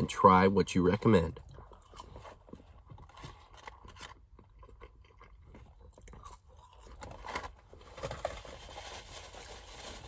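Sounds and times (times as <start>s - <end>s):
chewing with wet mouth clicks: 1.4s - 2.8s, 4.2s - 7.0s.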